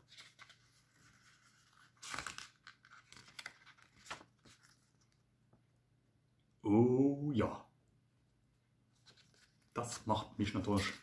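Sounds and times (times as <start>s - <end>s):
paper pages rustling: 0.0s - 5.2s, 9.0s - 10.0s, 10.6s - 11.0s.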